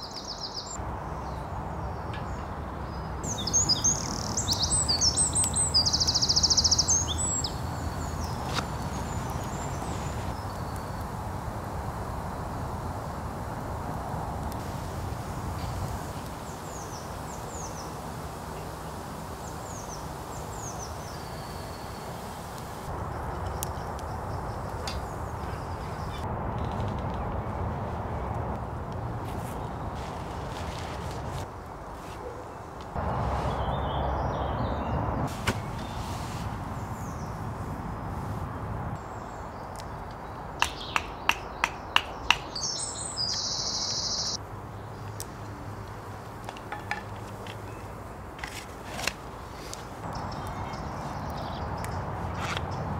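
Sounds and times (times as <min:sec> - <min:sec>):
songbird chirping: 0:00.0 - 0:11.1, 0:31.5 - 0:37.4, 0:39.0 - 0:46.2, 0:50.0 - 0:52.9
woodland ambience: 0:00.0 - 0:52.9.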